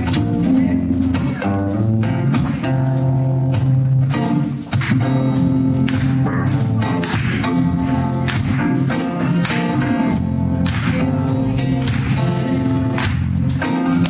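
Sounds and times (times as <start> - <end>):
acoustic guitar strumming: 0.0 - 14.0
drum kit: 0.0 - 14.0
electric bass: 0.0 - 14.0.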